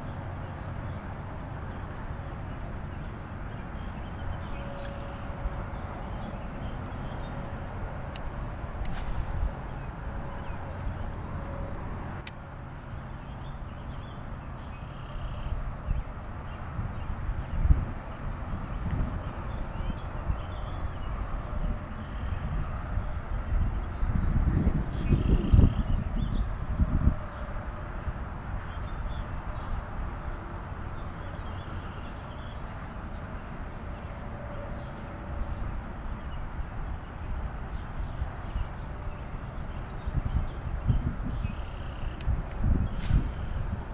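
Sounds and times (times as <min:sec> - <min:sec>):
wind buffeting microphone: 0:15.6 - 0:31.7, 0:35.2 - 0:43.9.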